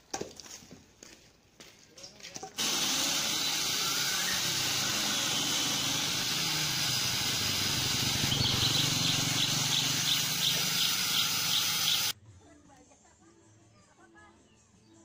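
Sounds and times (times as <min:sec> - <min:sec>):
electric chainsaw cutting wood: 0:02.6 - 0:12.2.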